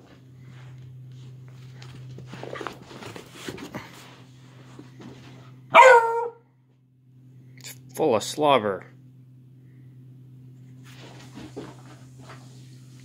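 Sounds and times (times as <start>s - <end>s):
puppy scuffling: 0.0s - 6.3s, 10.7s - 13.0s
steady low hum: 0.0s - 13.0s
puppy barking: 5.7s - 6.4s.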